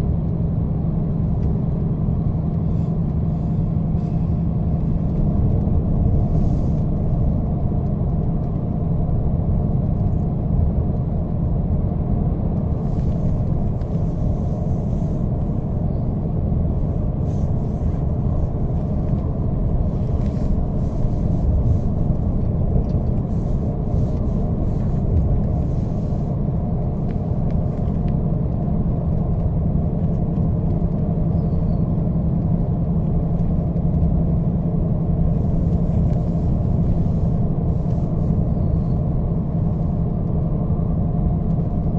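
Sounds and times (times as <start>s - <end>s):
coach engine rumble: 0.0s - 41.9s
tyres on the road: 0.0s - 41.9s
interior clicks and rattles: 16.4s - 38.5s.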